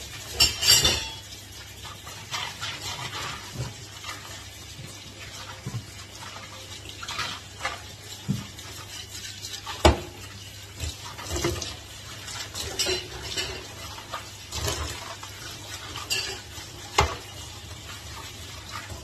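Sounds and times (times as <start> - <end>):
basket and brush knocking on sink: 8.2 - 8.7, 9.7 - 10.2.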